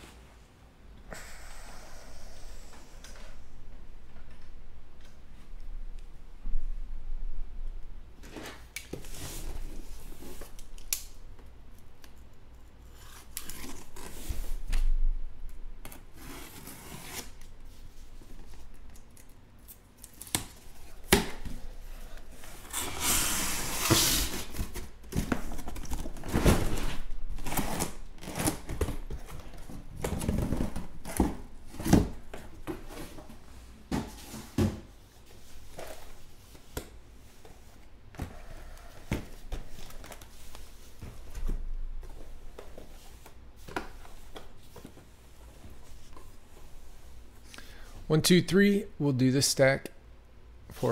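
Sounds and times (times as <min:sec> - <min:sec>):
boxes knocking and rustling: 0:20.5 - 0:36.3
tape and cardboard tearing: 0:22.6 - 0:28.9.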